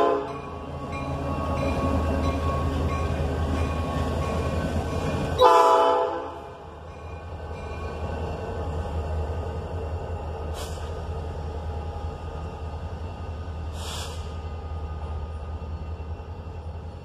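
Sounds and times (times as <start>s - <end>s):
diesel locomotives rumbling: 0.0s - 17.0s
air hissing: 10.5s - 11.0s, 13.7s - 14.4s.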